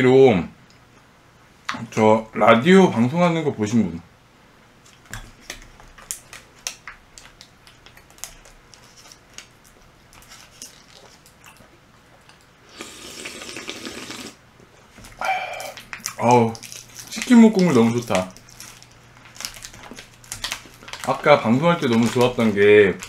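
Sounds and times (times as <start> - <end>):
chewing: 7.7 - 13.9, 15.0 - 21.1.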